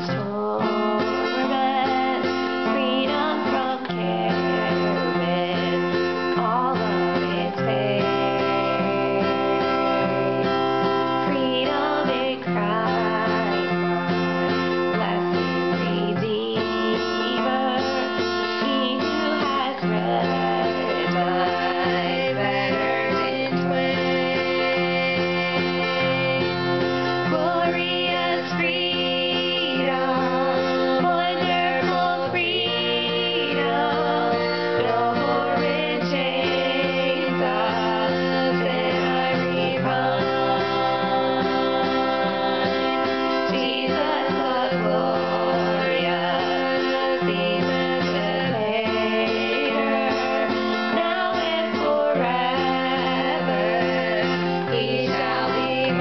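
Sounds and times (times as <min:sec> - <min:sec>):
acoustic guitar strumming: 0:00.0 - 0:56.0
women singing together: 0:00.0 - 0:56.0.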